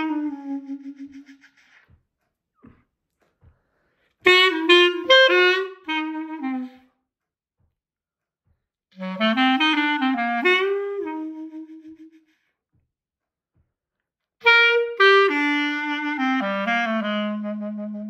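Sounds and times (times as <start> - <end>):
solo clarinet playing blues: 0.0 - 1.6, 4.2 - 6.9, 9.0 - 12.3, 14.4 - 18.0.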